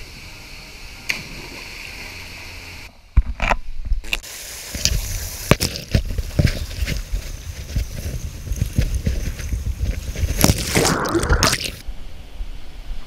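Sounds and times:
water splash: 1.1s - 2.3s, 10.4s - 11.8s.

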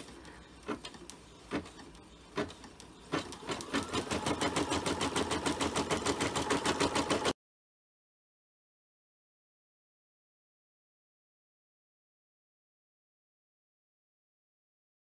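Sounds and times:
embroidery machine stitching: 0.0s - 7.4s.

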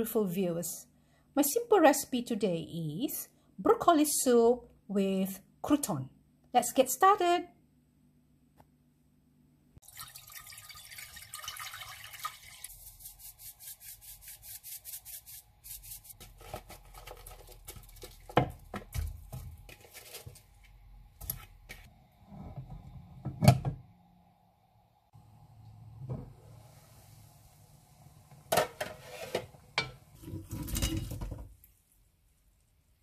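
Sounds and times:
water dripping: 9.8s - 12.8s
water pouring into saucepan: 9.8s - 13.1s.

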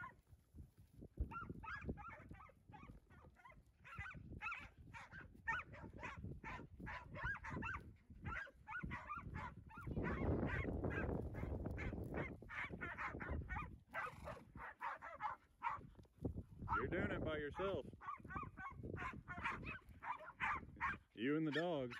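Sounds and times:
dogs yipping and barking: 1.3s - 15.8s, 16.7s - 16.9s, 18.0s - 21.9s.

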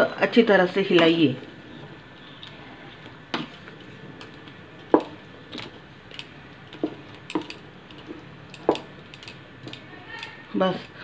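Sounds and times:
wooden spatula knocking metal pan: 6.8s - 8.9s.

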